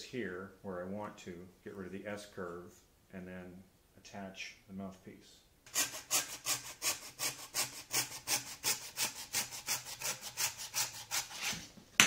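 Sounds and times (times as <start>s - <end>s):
saw cutting wooden branch: 5.7s - 11.6s.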